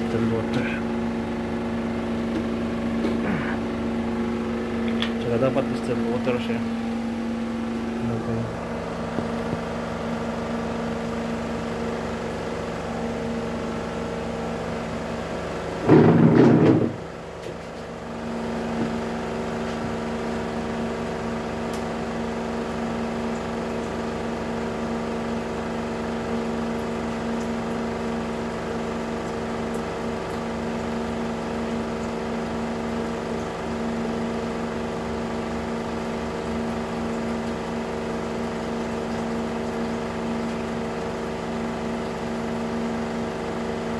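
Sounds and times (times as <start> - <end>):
autoclave humming: 0.0 - 43.9.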